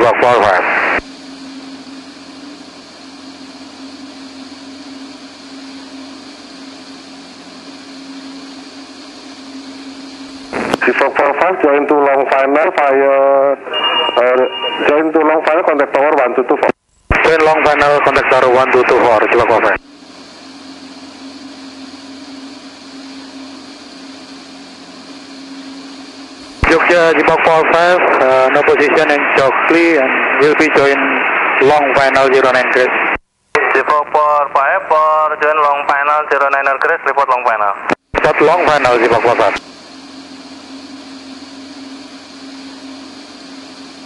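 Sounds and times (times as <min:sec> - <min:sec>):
light aircraft engine drone: 0:00.0 - 0:13.8, 0:17.2 - 0:32.8, 0:38.3 - 0:44.0
light aircraft engine droning: 0:17.6 - 0:31.9.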